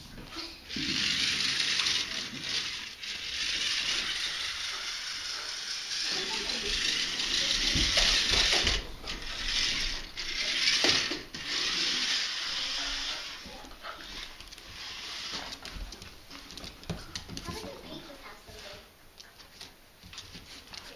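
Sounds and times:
toy motor and gears whirring: 0.3 - 15.9.

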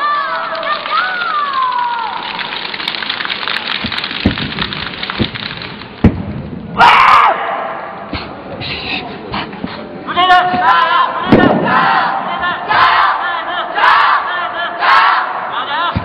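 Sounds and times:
steady crackling hiss: 0.4 - 6.8
thuds: 3.8 - 6.6.

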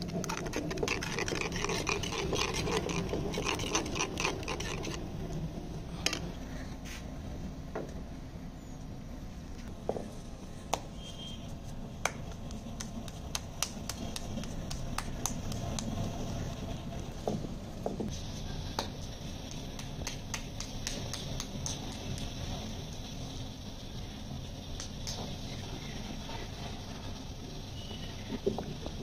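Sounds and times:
hands rubbing and patting: 11.5 - 16.2, 18.8 - 22.5.

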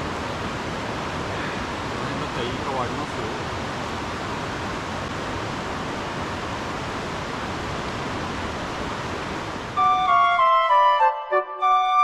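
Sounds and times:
stream water rushing: 0.0 - 11.9
music: 9.8 - 12.0.

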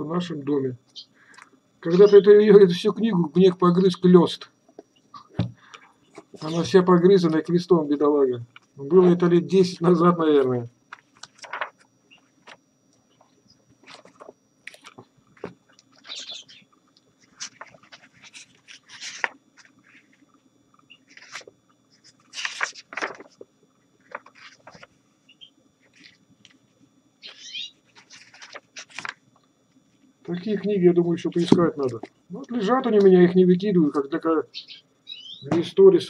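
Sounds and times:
cage birds chirping: 0.9 - 1.2, 15.9 - 16.8, 20.8 - 21.2, 25.2 - 25.6, 27.2 - 27.8, 34.5 - 35.5
book pages rustling: 10.9 - 16.5, 17.2 - 20.2, 21.0 - 25.0, 25.8 - 26.6, 27.3 - 29.4.

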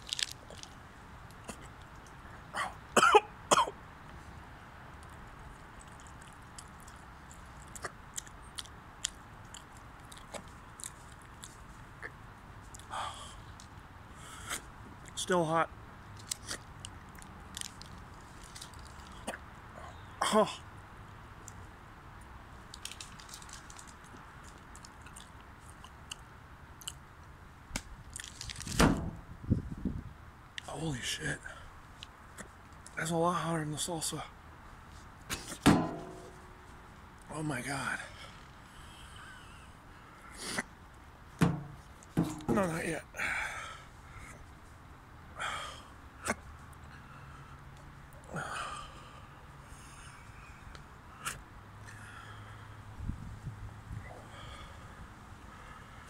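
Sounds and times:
man coughing and clearing throat: 2.6 - 3.8, 20.2 - 20.6
man chewing and smacking lips: 5.0 - 12.9, 22.8 - 27.3.

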